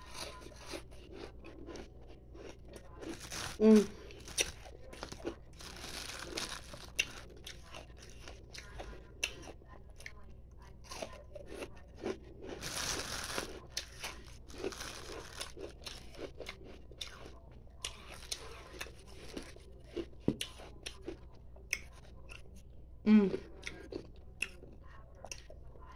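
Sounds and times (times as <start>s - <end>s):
ice being crunched and chewed: 0.0s - 9.5s, 10.9s - 21.2s.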